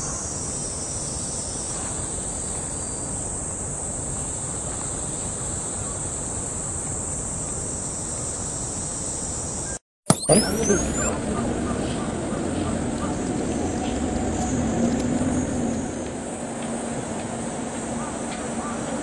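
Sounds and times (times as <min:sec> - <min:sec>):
insects droning: 0:00.1 - 0:09.8.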